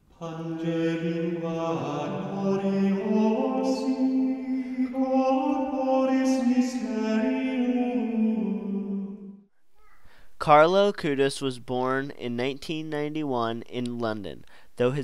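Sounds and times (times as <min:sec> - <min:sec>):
slow sung chant: 0:00.0 - 0:09.5.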